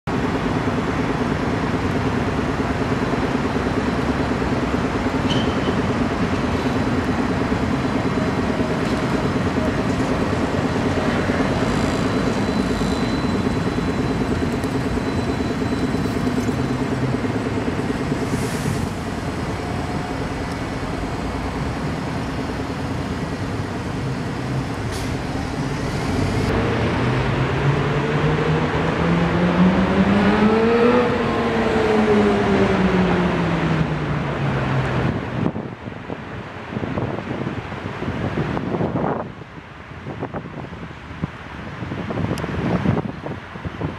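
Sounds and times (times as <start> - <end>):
tram rumbling on curved track: 0.1 - 43.9
vehicle pulling away: 0.7 - 35.2.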